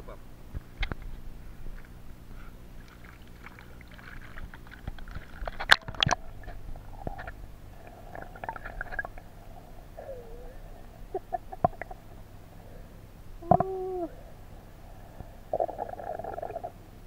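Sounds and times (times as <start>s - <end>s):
underwater river gurgling: 2.7s - 12.8s
underwater crackles and clicks: 2.8s - 9.4s, 11.5s - 12.0s.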